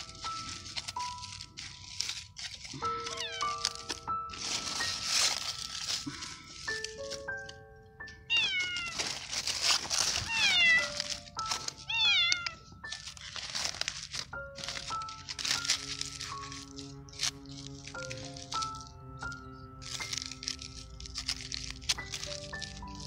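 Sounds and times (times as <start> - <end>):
background music sustained notes: 0.0 - 23.0
kitten meowing: 3.0 - 3.7, 8.2 - 9.0, 10.2 - 11.0, 11.8 - 12.6.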